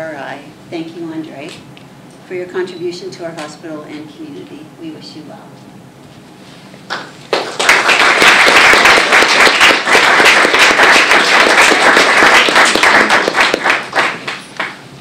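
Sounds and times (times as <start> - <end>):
audience applauding: 6.9 - 14.8.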